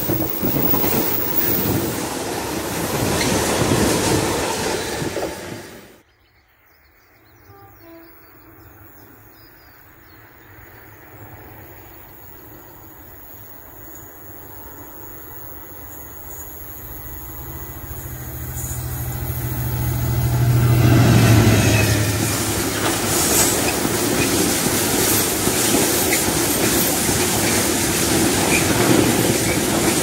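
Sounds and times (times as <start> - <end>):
train wheels rumbling and clacking: 0.0 - 6.0, 16.4 - 30.0
outdoor background noise: 0.0 - 30.0.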